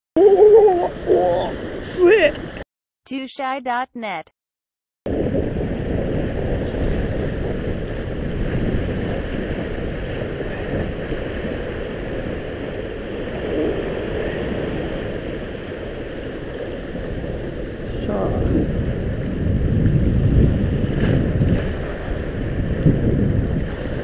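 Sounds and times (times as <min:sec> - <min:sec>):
waves washing against rocks: 0:05.1 - 0:24.0
wind buffeting microphone: 0:05.1 - 0:24.0.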